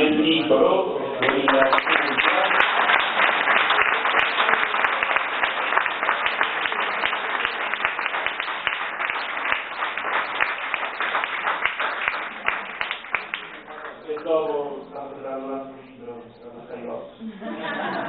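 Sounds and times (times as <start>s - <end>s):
audience applause: 1.2s - 14.8s.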